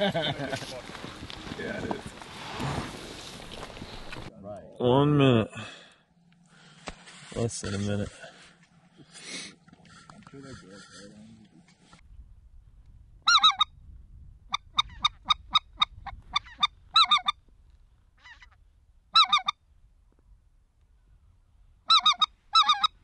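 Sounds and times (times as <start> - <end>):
goose calling: 13.2 - 13.7, 14.5 - 17.4, 18.2 - 19.6, 21.8 - 23.0.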